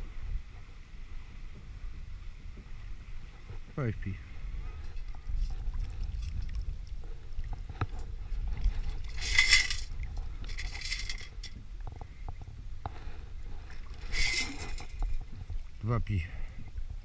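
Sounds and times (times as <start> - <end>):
gravel rattling in metal scoop: 8.9 - 9.9, 10.5 - 11.5, 14.0 - 15.0
stones clinking against steel: 9.1 - 9.9, 14.1 - 15.0.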